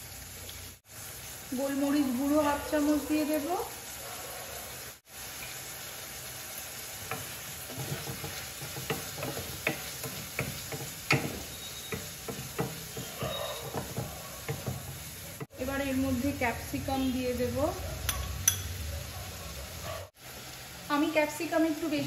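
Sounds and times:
corn sizzling in oil: 0:00.0 - 0:18.8, 0:19.4 - 0:22.0
wooden spatula scraping pan: 0:07.0 - 0:15.5.

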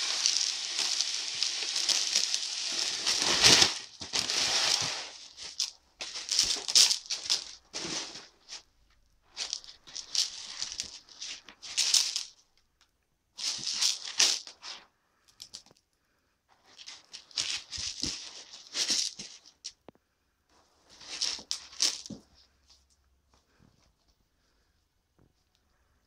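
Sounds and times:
cat litter rattling: 0:00.0 - 0:08.2.

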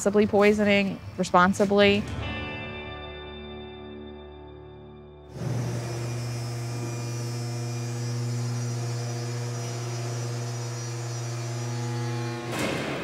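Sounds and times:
low electrical hum: 0:05.4 - 0:12.6.

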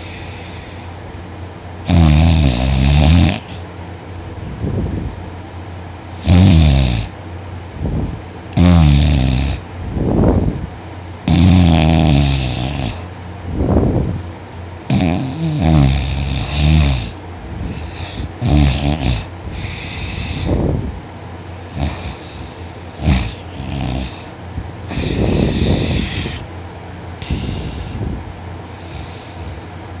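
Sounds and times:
soft breathing: 0:00.0 - 0:01.1, 0:17.5 - 0:18.4, 0:19.2 - 0:20.9, 0:21.6 - 0:26.5, 0:27.2 - 0:29.8
woman snoring loudly: 0:01.9 - 0:03.6, 0:06.2 - 0:07.1, 0:08.6 - 0:09.6, 0:11.3 - 0:13.1, 0:14.9 - 0:20.6, 0:21.7 - 0:24.3, 0:24.9 - 0:26.5, 0:27.2 - 0:28.0.

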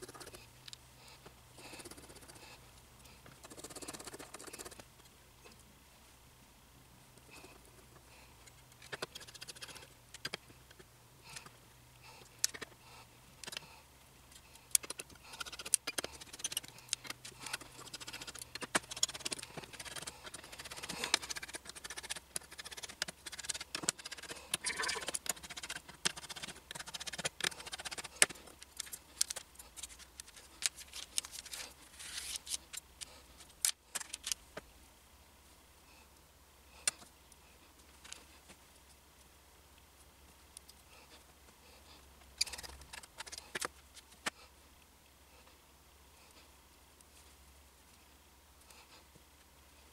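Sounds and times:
rustling: 0:12.0 - 0:34.7.

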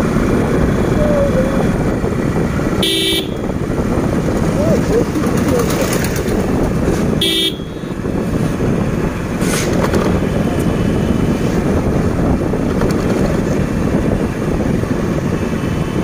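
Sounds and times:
motorcycle road noise: 0:00.0 - 0:16.0
wind on microphone: 0:00.0 - 0:16.0
short horn beep: 0:02.8 - 0:03.4, 0:07.2 - 0:07.8.

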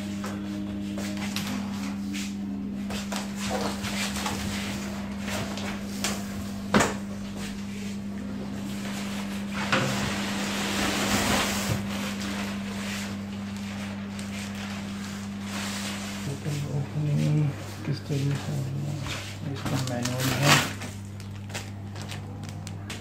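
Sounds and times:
steady low hum: 0:00.0 - 0:23.0
plastic sheeting rustling: 0:08.8 - 0:23.0.

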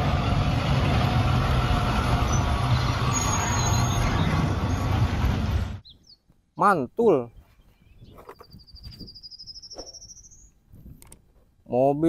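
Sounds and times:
bus engine passing: 0:00.0 - 0:05.8
road noise: 0:00.0 - 0:06.2.

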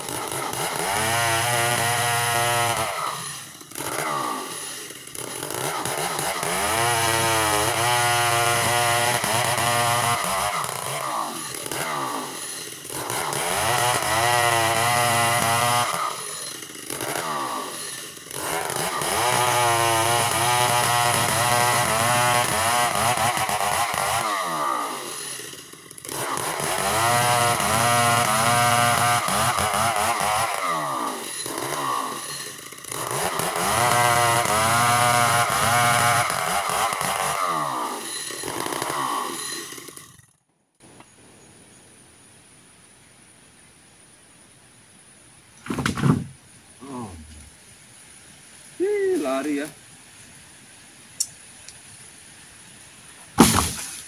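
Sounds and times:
chainsaw cutting log: 0:00.0 - 0:40.4, 0:53.2 - 0:54.0.

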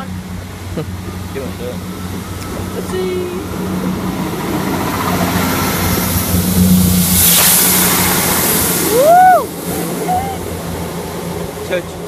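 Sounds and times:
electric train rushing past: 0:00.0 - 0:12.0
child shouting: 0:08.9 - 0:10.4.

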